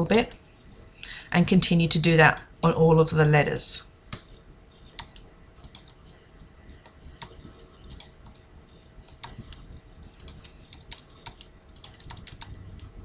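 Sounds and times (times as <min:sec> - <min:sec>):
mouse clicks: 0:04.9 - 0:06.1, 0:06.8 - 0:08.4, 0:09.0 - 0:12.5.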